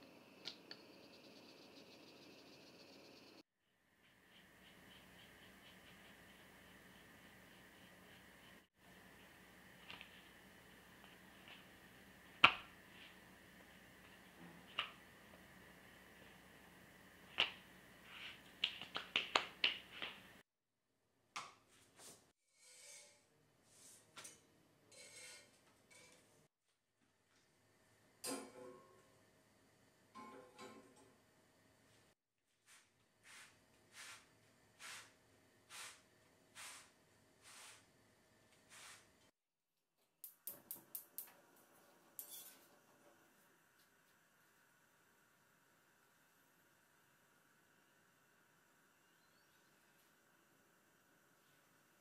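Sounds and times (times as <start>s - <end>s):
dough slapped between hands: 12.4s - 12.7s, 18.6s - 20.3s.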